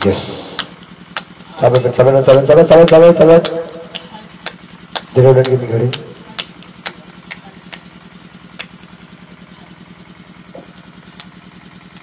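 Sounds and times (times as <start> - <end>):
engine idling: 0.0 - 12.0
sharp clicks: 0.5 - 7.9.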